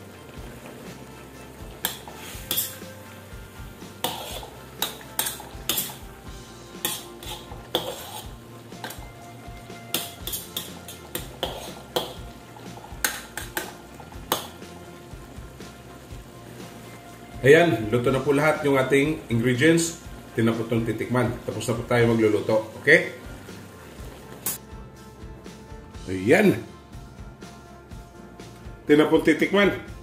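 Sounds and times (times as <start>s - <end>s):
ladle scraping metal wok: 1.8s - 9.2s, 9.8s - 14.6s.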